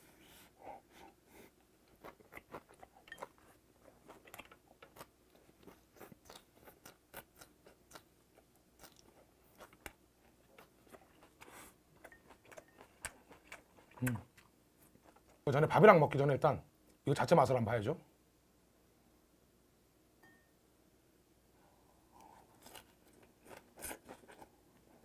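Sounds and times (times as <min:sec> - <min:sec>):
person chewing crunchy food: 0:01.8 - 0:15.4, 0:22.2 - 0:25.0.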